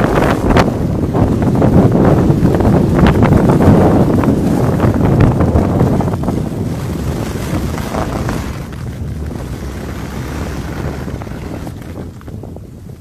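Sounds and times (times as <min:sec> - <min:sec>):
wind buffeting microphone: 0:00.0 - 0:13.0
ski edges scraping snow: 0:03.0 - 0:13.0.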